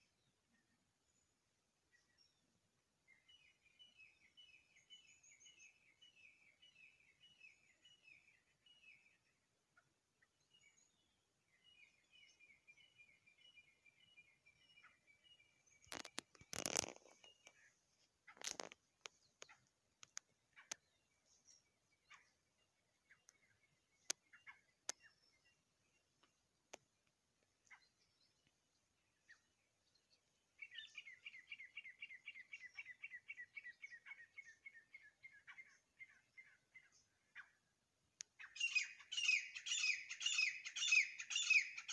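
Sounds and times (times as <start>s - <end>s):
francolin calling: 30.6s - 37.6s, 38.4s - 41.9s.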